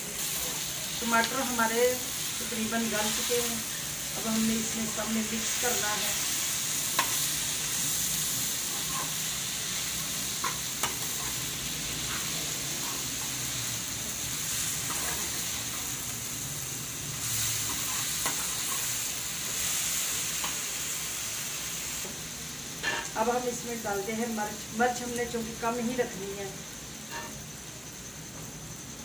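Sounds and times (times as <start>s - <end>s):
vegetables sizzling in a pan: 0.0s - 29.0s
metal spoon stirring and scraping: 8.6s - 9.2s, 14.8s - 15.9s, 17.5s - 19.0s.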